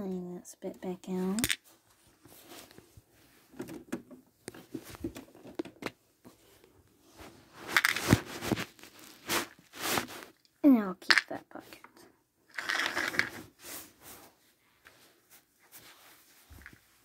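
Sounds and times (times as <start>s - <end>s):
rustling of plastic toys: 1.1s - 17.0s.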